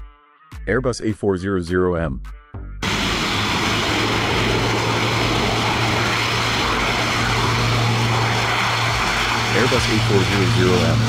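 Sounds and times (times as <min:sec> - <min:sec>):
propeller drone: 0:02.8 - 0:11.0
rushing engine noise: 0:02.8 - 0:11.0.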